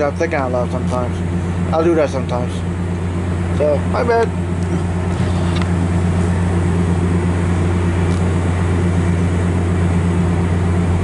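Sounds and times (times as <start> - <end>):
diesel locomotive idling: 0.0 - 11.0.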